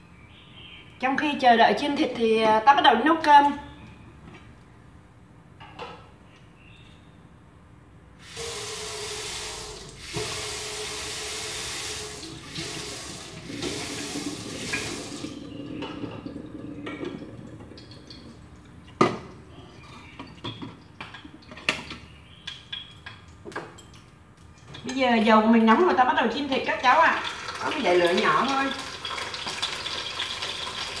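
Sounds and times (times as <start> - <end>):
kitchen tap running: 8.2 - 19.5, 26.6 - 31.0.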